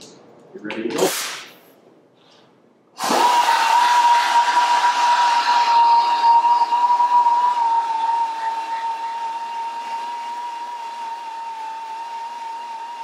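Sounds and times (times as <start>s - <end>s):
belt sander high whine: 6.9s - 13.0s.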